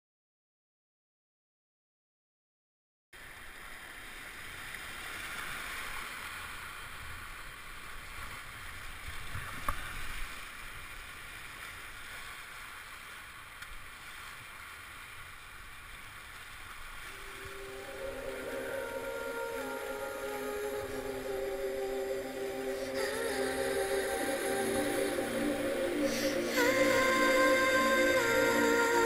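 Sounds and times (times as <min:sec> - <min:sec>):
music: 0:17.2 - 0:29.0.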